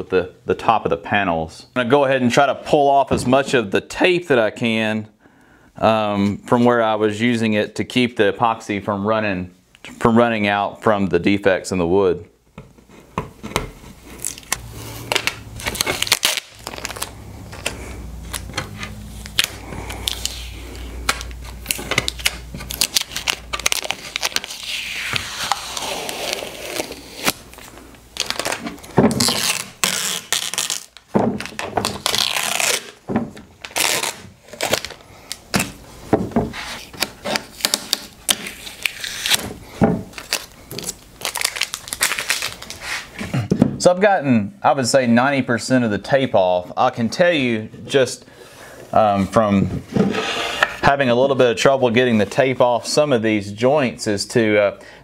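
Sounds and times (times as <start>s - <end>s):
tape crinkling: 14.0s - 36.0s, 36.6s - 39.5s, 40.1s - 43.2s
tape ripping off: 14.1s - 35.8s, 36.6s - 39.5s, 40.1s - 43.1s.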